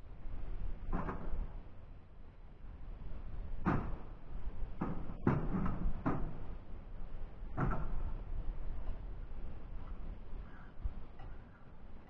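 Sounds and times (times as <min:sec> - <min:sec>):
wind rumbling on microphone: 0:00.0 - 0:12.0
dull knocks: 0:04.8 - 0:06.4.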